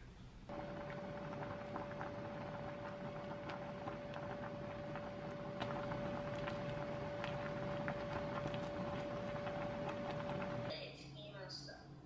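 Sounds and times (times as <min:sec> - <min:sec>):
constant single-pitched hum: 0:00.4 - 0:10.7
chopsticks stirring in pot: 0:00.5 - 0:10.7
water boiling with pops: 0:00.5 - 0:10.7.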